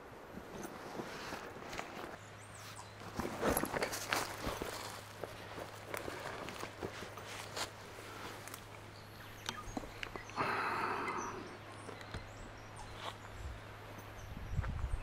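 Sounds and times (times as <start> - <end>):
footsteps on a trail: 0.3 - 10.8.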